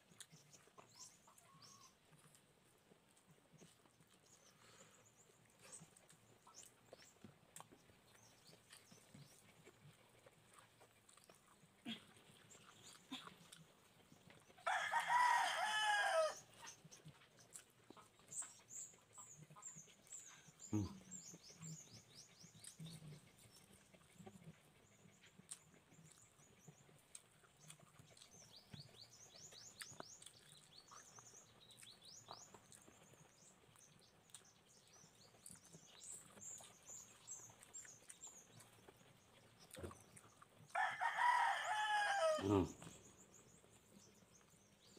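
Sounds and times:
small birds chirping: 0.0s - 44.9s
rooster crowing: 14.7s - 16.4s, 40.8s - 42.7s.

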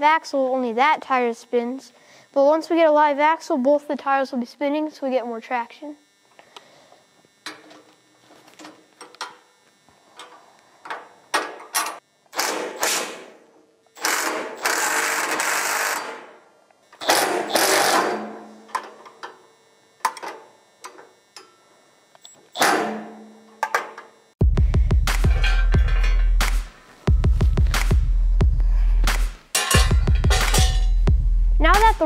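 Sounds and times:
impact driver rattling: 17.0s - 18.3s
metal and tool clanks: 25.2s - 26.4s, 29.5s - 31.0s.

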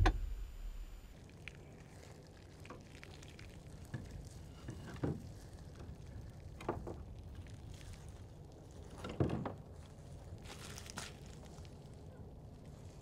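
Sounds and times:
low steady hum: 0.0s - 4.7s.

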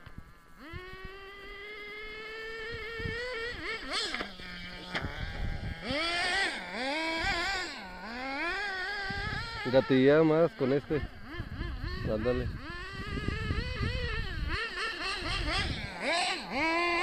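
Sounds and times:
small nitro engine revving: 0.0s - 17.0s.

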